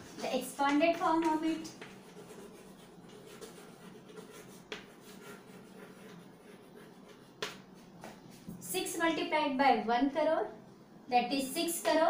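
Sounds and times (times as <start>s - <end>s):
chalk scratching on blackboard: 1.1s - 7.7s.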